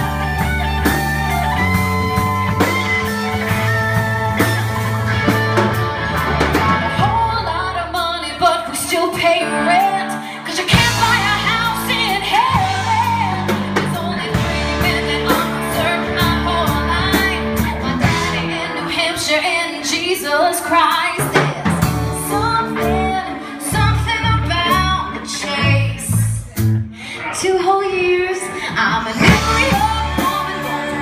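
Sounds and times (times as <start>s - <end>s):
drum kit: 0.0s - 19.3s, 20.9s - 26.9s, 28.7s - 31.0s
bass guitar: 0.0s - 19.6s, 21.1s - 31.0s
keyboard: 0.0s - 20.4s
electric guitar: 0.0s - 31.0s
woman singing lead: 6.2s - 31.0s.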